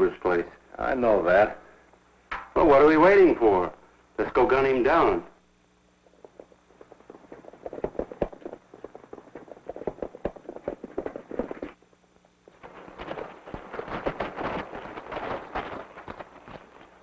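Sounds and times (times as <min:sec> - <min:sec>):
hooves clip-clopping on rocky ground: 0:06.0 - 0:11.8, 0:12.4 - 0:17.0.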